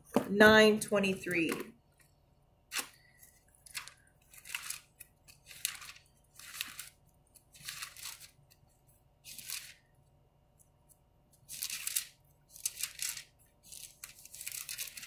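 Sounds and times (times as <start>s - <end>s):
thin paper pages rustling: 2.7s - 9.8s, 11.4s - 15.0s.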